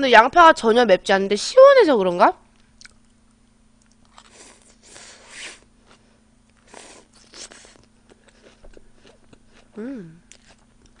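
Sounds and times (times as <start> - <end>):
chewing crunchy raw onion: 3.8 - 11.0.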